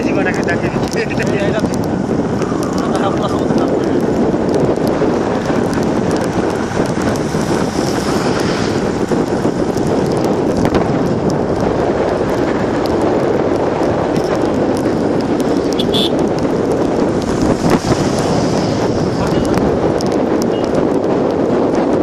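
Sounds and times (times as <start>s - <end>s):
road noise: 0.0s - 22.0s
wind rushing: 0.0s - 22.0s.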